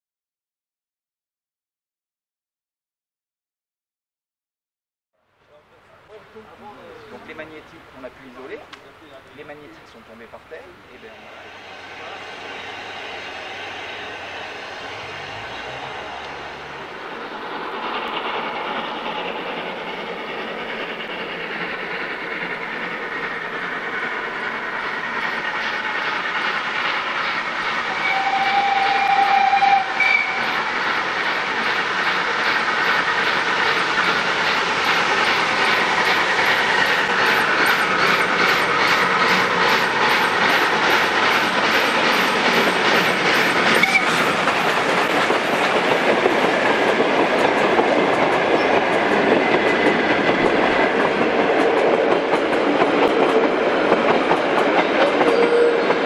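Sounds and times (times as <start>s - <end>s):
steam locomotive chuffing: 6.1s - 56.0s
locomotive whistle: 11.2s - 16.8s, 27.9s - 30.7s, 43.8s - 44.2s, 55.0s - 56.0s
carriages clickety-clack: 30.1s - 56.0s.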